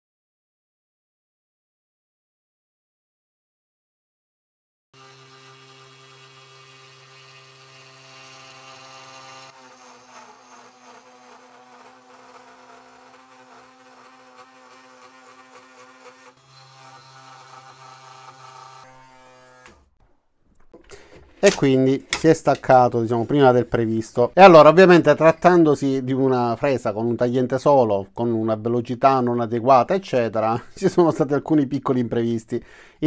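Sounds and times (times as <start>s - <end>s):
end mill cutting wood: 5.0s - 20.0s
router spindle motor whining: 5.0s - 20.0s.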